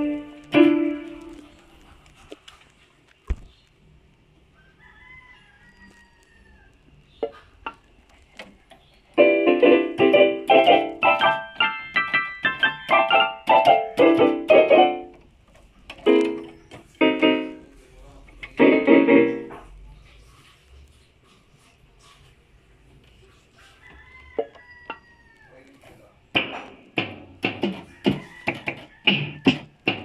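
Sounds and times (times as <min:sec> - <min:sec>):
keyboard notes and chords: 0:00.0 - 0:01.5, 0:09.2 - 0:15.2, 0:16.0 - 0:17.7, 0:18.4 - 0:19.6.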